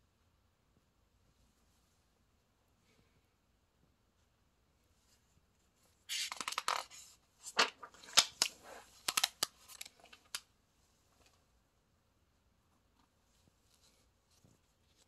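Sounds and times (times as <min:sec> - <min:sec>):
book page turning: 0:06.1 - 0:10.4.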